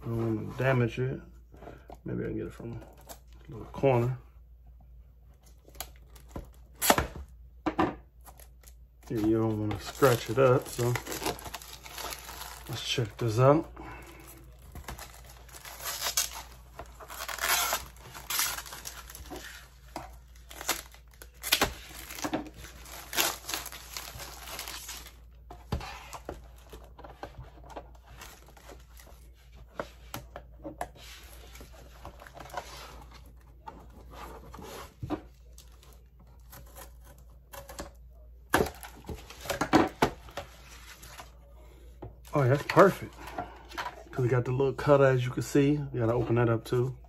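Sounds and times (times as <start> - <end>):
plastic wrap crinkling and tearing: 8.2 - 25.3.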